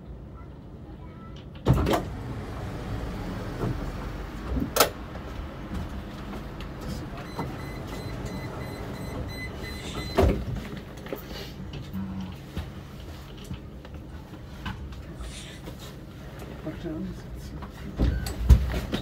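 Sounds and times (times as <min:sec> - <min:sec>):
tram low hum: 0:00.0 - 0:15.6
tram doors shutting clunk: 0:01.4 - 0:10.8
high rapid beeping: 0:07.2 - 0:10.2.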